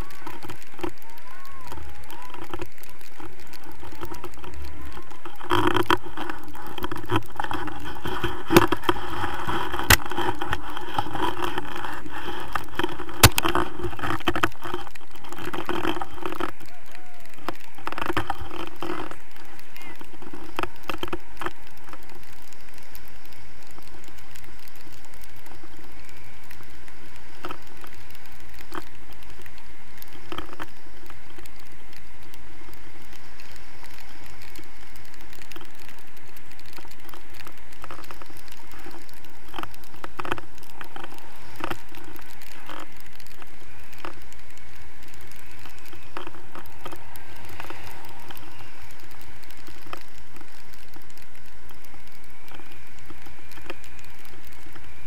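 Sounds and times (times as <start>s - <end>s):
wind noise on microphone: 0.0s - 55.0s.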